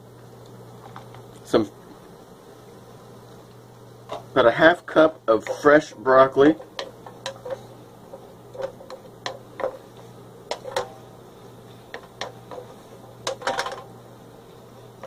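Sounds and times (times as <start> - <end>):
spatula tapping and scraping skillet: 5.3 - 13.9.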